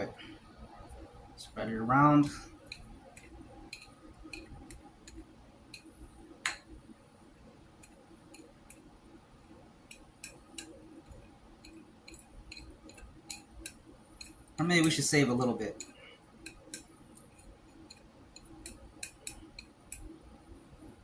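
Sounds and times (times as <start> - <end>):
chopsticks clicking on a plate: 2.6 - 6.7, 7.8 - 8.9, 9.8 - 15.0, 15.7 - 20.1.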